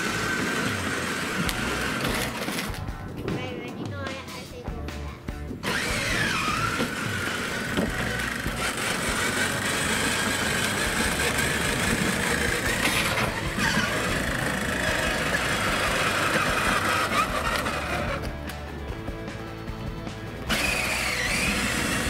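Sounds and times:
electric motors whining: 0:00.0 - 0:02.9, 0:05.6 - 0:19.5, 0:20.3 - 0:22.0
tyre noise on concrete: 0:00.0 - 0:03.4, 0:05.5 - 0:18.5.

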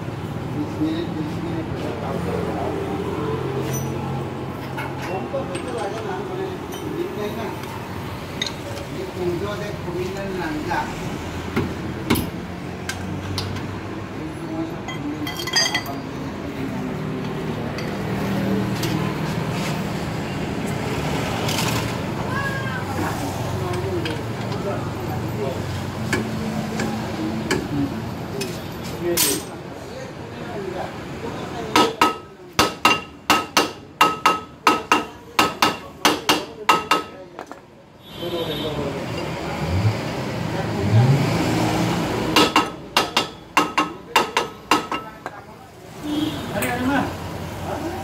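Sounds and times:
metal tools clinking: 0:03.6 - 0:04.0, 0:14.9 - 0:16.1, 0:29.1 - 0:29.6.

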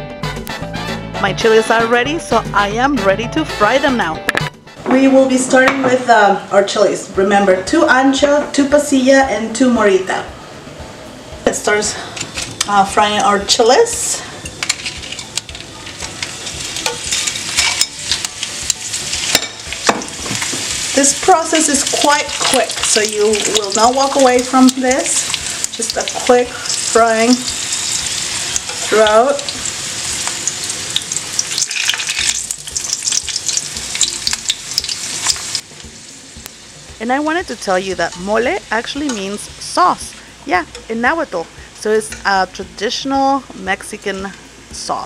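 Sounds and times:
chilies sizzling in hot oil: 0:11.4 - 0:45.0
metal tongs in pan: 0:11.9 - 0:35.6, 0:38.1 - 0:39.4
metal tongs clicking on pan: 0:14.4 - 0:20.0, 0:21.7 - 0:27.5, 0:39.0 - 0:39.4.

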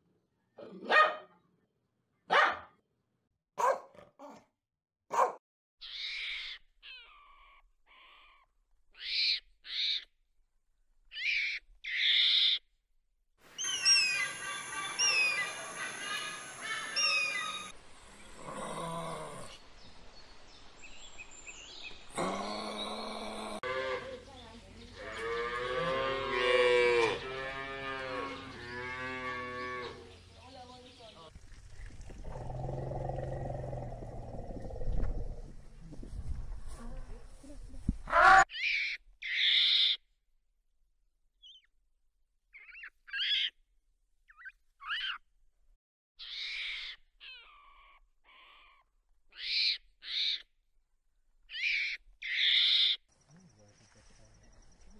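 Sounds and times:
puppy barking: 0:00.6 - 0:01.4, 0:02.3 - 0:02.8, 0:03.6 - 0:04.4, 0:05.1 - 0:05.4
short animal calls and chirps: 0:05.8 - 0:10.1, 0:11.1 - 0:12.6, 0:38.2 - 0:40.0, 0:44.3 - 0:45.2, 0:46.2 - 0:50.5, 0:51.5 - 0:53.5
cow mooing: 0:25.0 - 0:30.1.

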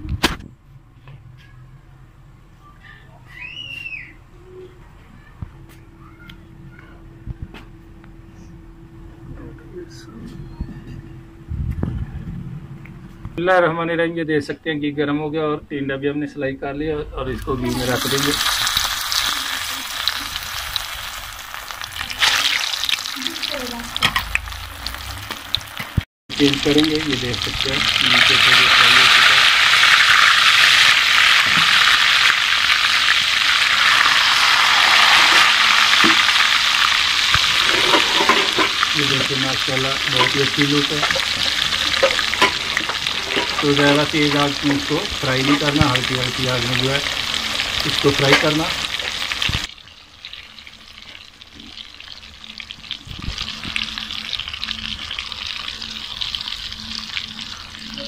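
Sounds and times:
gourds sizzling in oil: 0:17.3 - 0:58.0.

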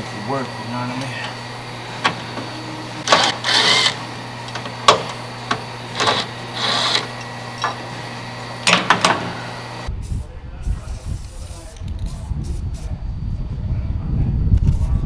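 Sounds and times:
cordless drill driving screws: 0:02.0 - 0:07.9.

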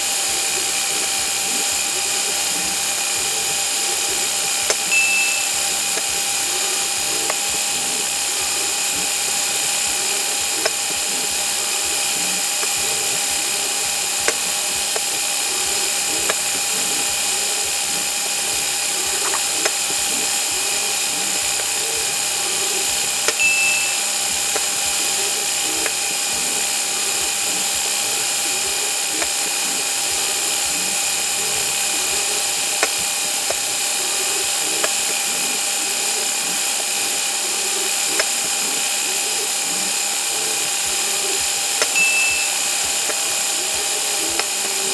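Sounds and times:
motors and gears whirring: 0:00.0 - 0:44.9
small clicks: 0:00.3 - 0:31.0, 0:31.7 - 0:35.5, 0:40.6 - 0:44.9
brief high tone: 0:04.9 - 0:05.6, 0:23.4 - 0:24.1, 0:42.0 - 0:42.6.

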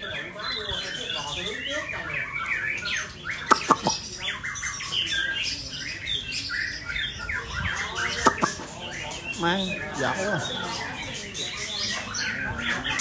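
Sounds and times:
songbirds chorus: 0:00.0 - 0:13.0
sharp clicks: 0:03.5 - 0:04.0.

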